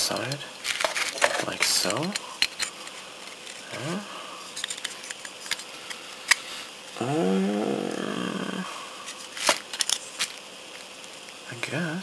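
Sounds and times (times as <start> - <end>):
plastic parts clicking and knocking: 0.0 - 3.6, 4.5 - 6.5, 9.3 - 11.3
man humming hm: 7.0 - 8.9.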